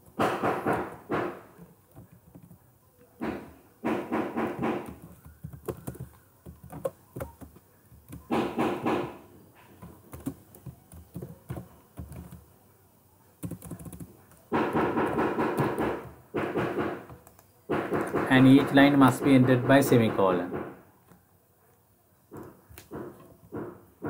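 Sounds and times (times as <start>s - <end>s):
computer keyboard typing: 1.9s - 2.6s, 3.9s - 9.2s, 9.8s - 12.5s, 13.4s - 20.1s
person speaking: 18.0s - 20.7s.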